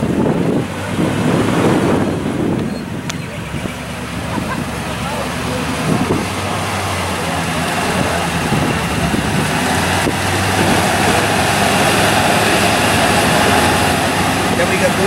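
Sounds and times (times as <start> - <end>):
car engine idling: 0.0 - 15.0
outdoor noise: 0.0 - 15.0.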